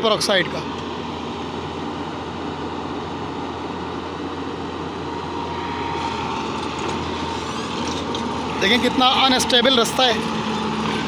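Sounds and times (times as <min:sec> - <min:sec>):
excavator diesel engine: 0:00.0 - 0:11.0
thin whine: 0:00.4 - 0:11.0.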